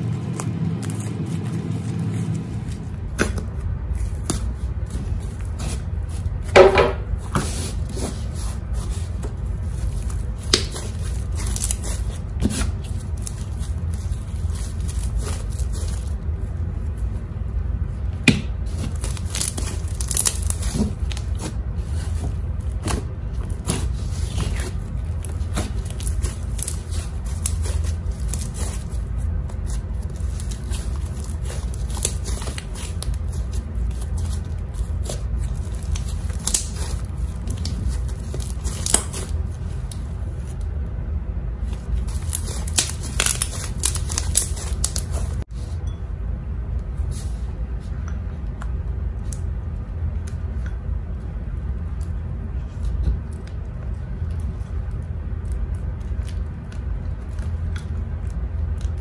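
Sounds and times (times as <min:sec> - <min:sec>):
slime crackling and tearing: 0:00.0 - 0:06.5, 0:07.5 - 0:16.9, 0:18.6 - 0:40.8, 0:41.6 - 0:45.4
steady low hum: 0:00.0 - 0:59.0.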